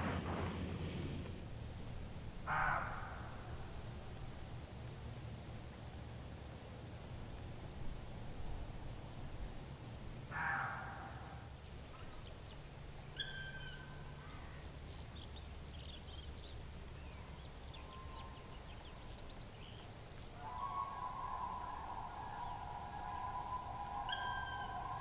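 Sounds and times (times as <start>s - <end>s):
whistled bird notes: 13.2s - 14.2s, 20.4s - 25.0s
harsh bird call: 20.4s - 25.0s
high bird chirps: 20.5s - 25.0s.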